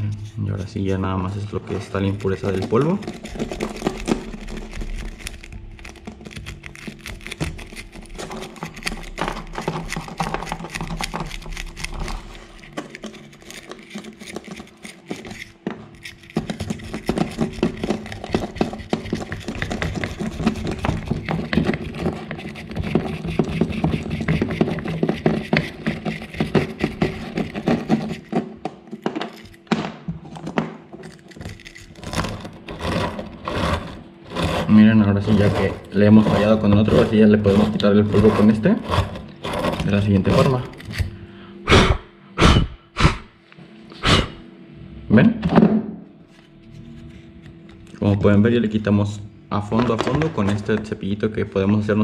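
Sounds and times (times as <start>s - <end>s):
wire brush scrubbing metal: 31.9s - 40.8s.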